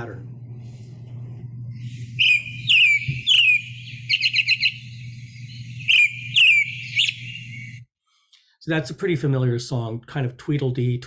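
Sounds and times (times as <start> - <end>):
faint low hum: 0.0 - 7.8
robin singing: 1.8 - 7.8.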